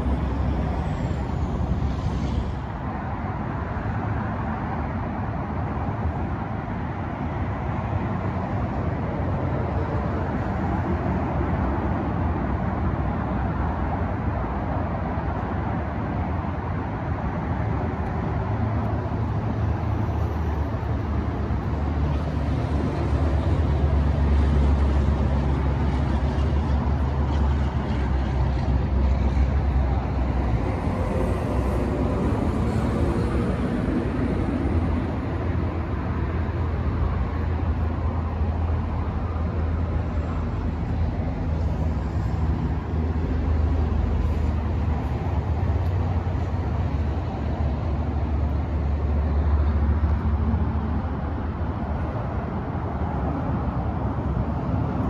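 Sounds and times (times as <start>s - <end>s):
vehicle engine hum: 0.0s - 55.0s.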